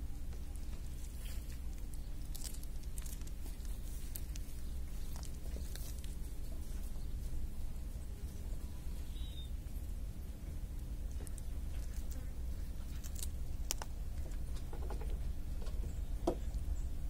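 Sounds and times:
cat chewing food: 0:00.2 - 0:07.0, 0:10.2 - 0:15.8.

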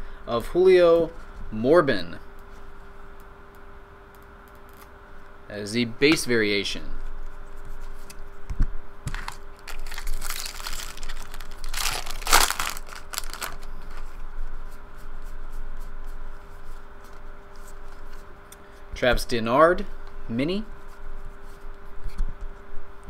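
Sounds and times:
card wrappers rustling and crinkling: 0:09.1 - 0:14.2.

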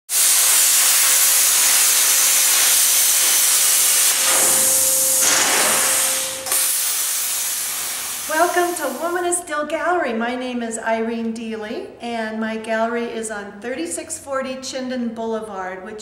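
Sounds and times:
loud steady hiss: 0:00.1 - 0:09.3.

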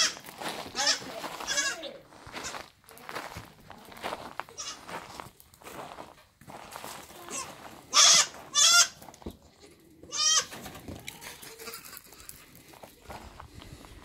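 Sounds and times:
goats bleating: 0:00.0 - 0:02.5, 0:04.5 - 0:04.9, 0:07.2 - 0:10.6.

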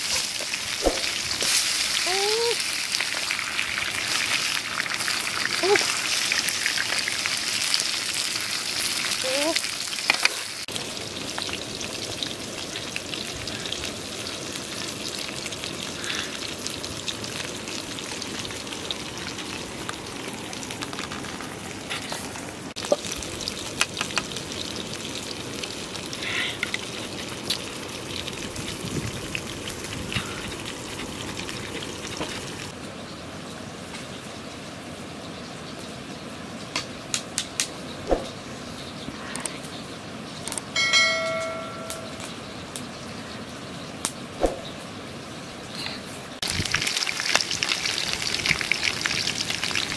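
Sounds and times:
fish sizzling in hot oil: 0:00.0 - 0:21.8, 0:22.8 - 0:32.7, 0:46.4 - 0:49.9.

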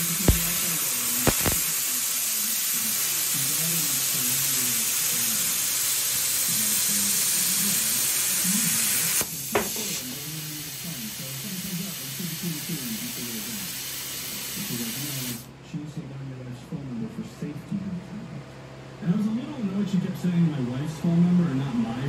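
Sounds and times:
plasma cutter arc hissing: 0:00.0 - 0:15.5
sharp click: 0:01.3 - 0:01.6.

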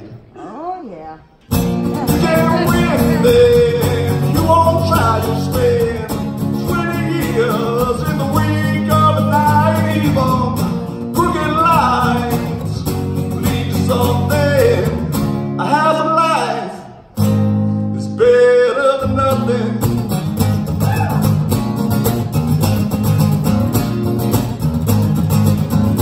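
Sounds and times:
strummed acoustic guitar: 0:01.5 - 0:26.0
man singing: 0:01.9 - 0:17.0, 0:17.8 - 0:20.0.

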